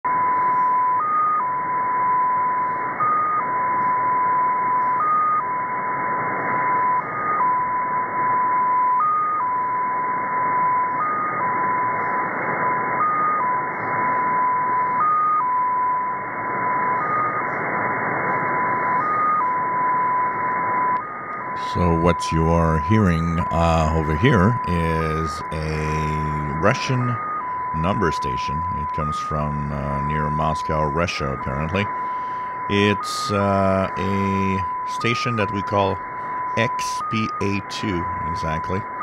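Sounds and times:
steady tone jumping in pitch: 6.4 - 39.0
shortwave static hiss: 16.1 - 22.5.

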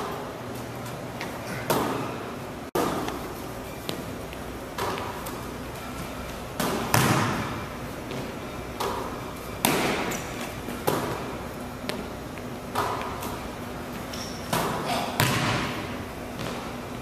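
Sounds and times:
basketball hitting rim and backboard: 2.8 - 3.2, 6.5 - 12.1, 14.5 - 16.7
basketball bouncing on wooden floor: 6.6 - 10.0, 14.5 - 16.7.

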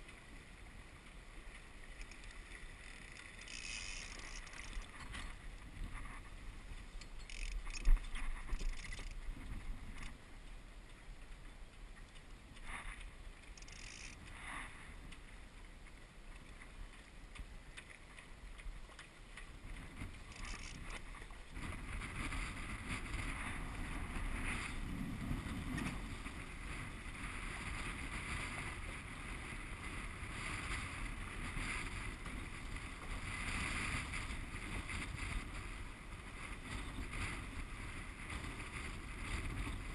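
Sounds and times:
wind on microphone: 0.0 - 10.3, 18.4 - 39.9
water rushing along boat hull: 0.0 - 39.9.

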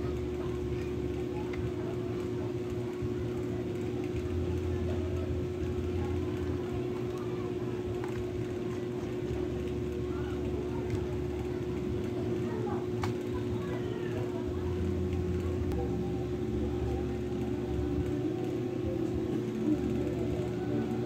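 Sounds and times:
faint voices: 0.0 - 21.0
steady motor hum: 0.0 - 21.0.

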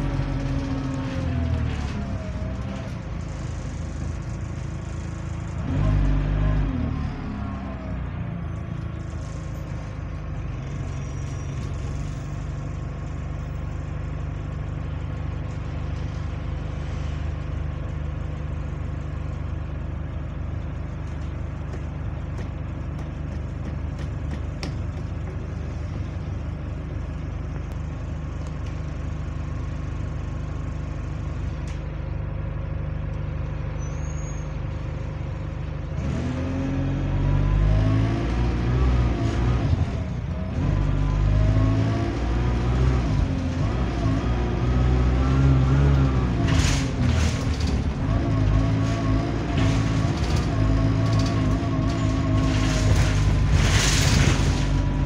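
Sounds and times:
bus engine revving: 0.0 - 13.8, 35.1 - 55.0
bus diesel engine idling: 0.0 - 36.0.

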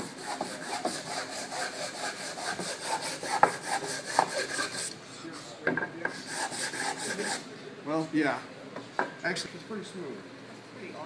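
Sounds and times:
sandpaper rubbing on wood: 0.0 - 4.9, 6.1 - 7.4.

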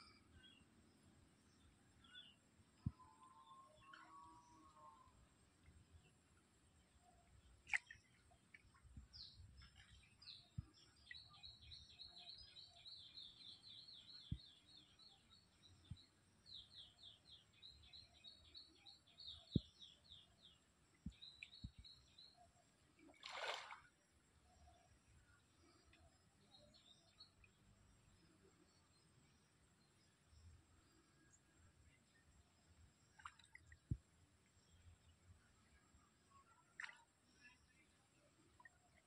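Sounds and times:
small bird singing: 9.1 - 22.5, 25.8 - 27.6.

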